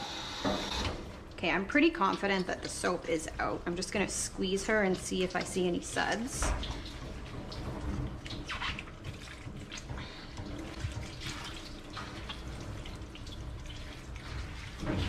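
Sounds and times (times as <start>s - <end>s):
water dripping and trickling: 1.1s - 15.0s
small water splashes: 4.6s - 15.0s.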